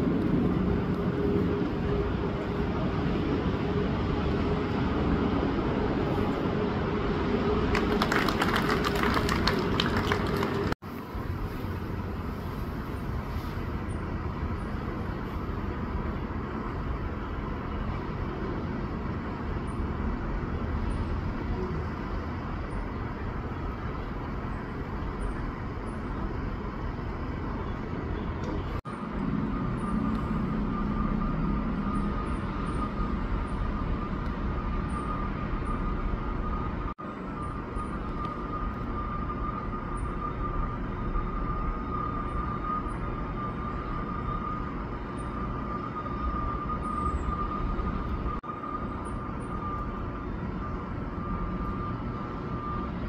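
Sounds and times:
outdoor rumble and hiss: 0.0s - 53.0s
faint steady high tone: 27.6s - 53.0s.

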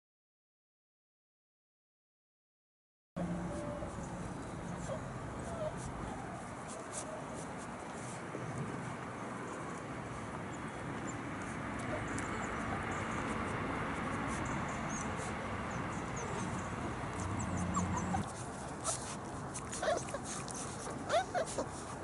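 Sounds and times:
steady outdoor hiss: 3.2s - 22.0s
puppies squeaking and whimpering: 4.7s - 5.9s, 14.3s - 21.9s.

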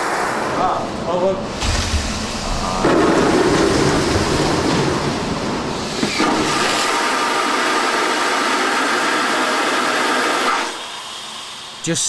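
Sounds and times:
low rumble: 1.4s - 5.9s
vacuum toilet flushing: 1.5s - 11.8s.

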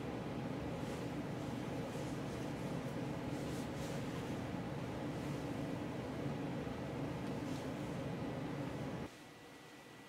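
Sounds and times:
low room hum: 0.0s - 10.0s
jacket rustling: 0.7s - 6.0s.

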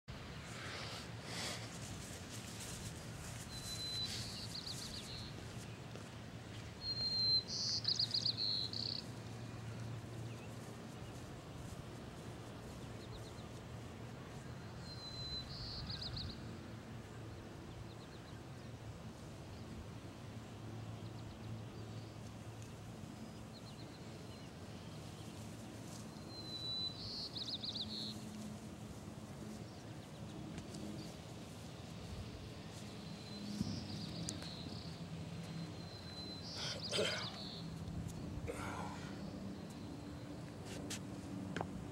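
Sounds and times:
songbird singing trills: 3.3s - 5.8s, 6.6s - 11.2s, 14.3s - 16.5s, 23.2s - 28.5s, 31.0s - 40.5s.

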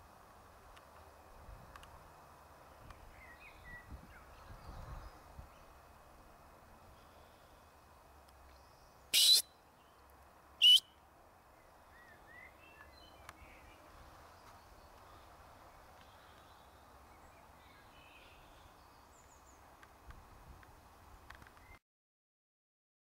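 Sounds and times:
distant bird chirps: 8.6s - 10.0s, 10.6s - 11.0s.

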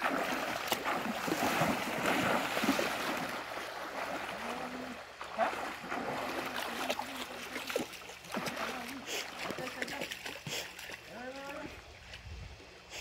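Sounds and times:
stream rushing: 0.0s - 9.3s
water splashing around legs: 0.0s - 11.8s.

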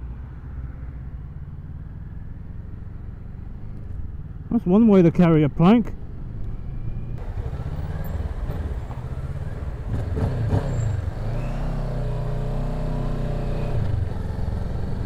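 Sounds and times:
road noise: 0.0s - 15.0s
motorcycle engine running: 7.2s - 15.0s.

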